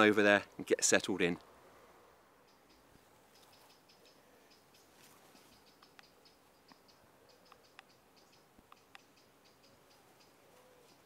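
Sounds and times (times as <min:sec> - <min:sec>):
soft high-pitched ticks: 0:02.4 - 0:11.0.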